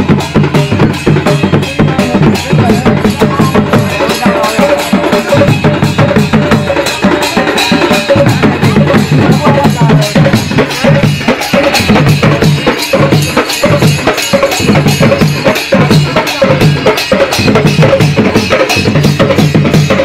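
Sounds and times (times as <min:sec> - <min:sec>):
hand drums fast rhythm: 0:00.0 - 0:20.0
pitched melody: 0:00.0 - 0:20.0.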